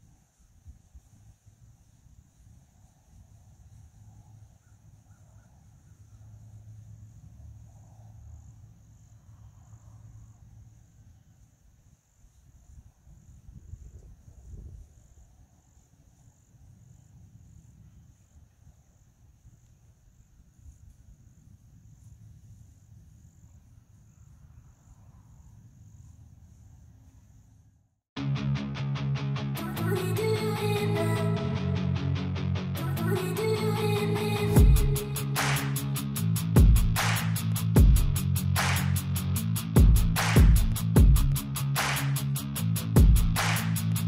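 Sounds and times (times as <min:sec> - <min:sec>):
faint insect chorus: 0:00.0 - 0:28.0
low rumble: 0:34.4 - 0:41.4.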